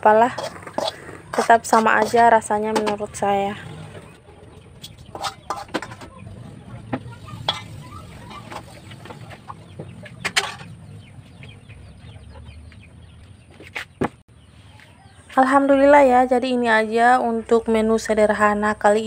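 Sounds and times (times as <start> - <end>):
metal ladle scraping a wok: 0.0 - 6.6, 7.2 - 9.6, 10.2 - 10.8.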